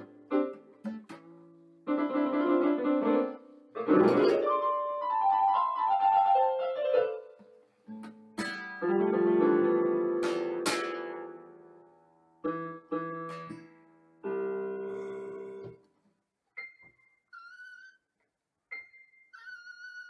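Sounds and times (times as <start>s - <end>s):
electronic keyboard chords: 1.9s - 7.2s
acoustic guitar: 3.2s - 4.6s, 12.5s - 15.9s.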